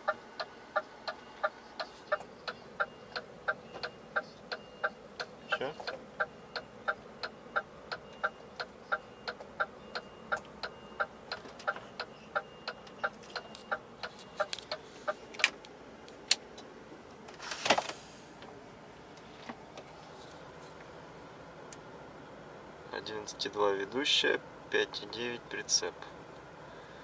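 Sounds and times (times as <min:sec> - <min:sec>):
truck indicator ticking: 0:00.0 - 0:14.8.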